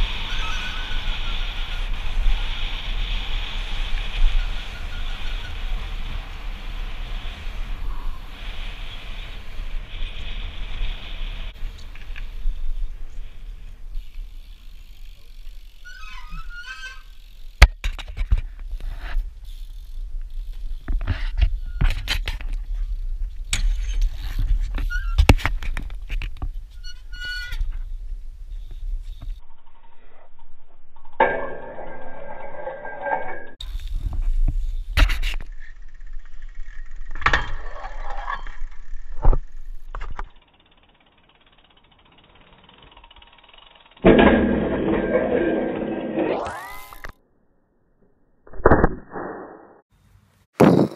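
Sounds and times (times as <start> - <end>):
bike rattling and clattering: 0.0 - 47.2
metallic scrape on steel rail: 44.0 - 47.1.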